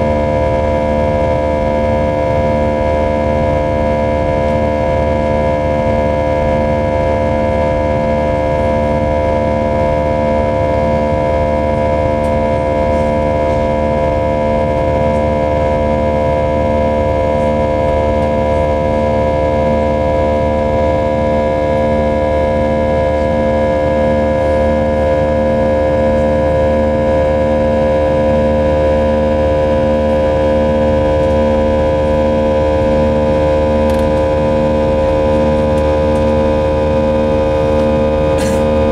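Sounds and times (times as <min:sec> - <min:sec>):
jet engine whine: 0:00.0 - 0:38.9
pulsing low tone: 0:00.0 - 0:38.9
low engine rumble: 0:11.7 - 0:38.9.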